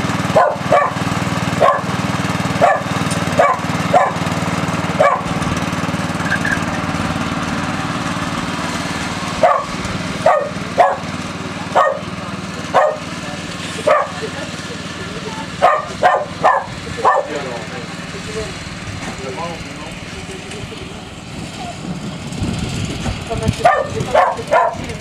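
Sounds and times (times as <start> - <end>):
lawn mower engine humming: 0.0 - 25.0
dog barking: 0.4 - 1.0, 1.6 - 1.9, 2.6 - 4.2, 5.0 - 5.3, 9.4 - 11.1, 11.7 - 12.1, 12.7 - 13.1, 13.8 - 14.2, 15.6 - 17.4, 23.6 - 24.9.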